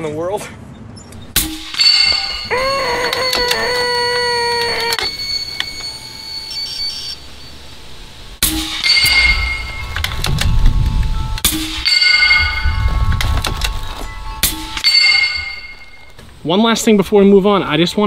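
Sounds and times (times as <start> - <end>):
bullets hitting steel plates: 1.2 - 2.5, 8.4 - 10.3, 11.4 - 16.1
ringing metallic clang: 1.2 - 2.6, 8.4 - 16.2
low rumble: 7.2 - 14.8.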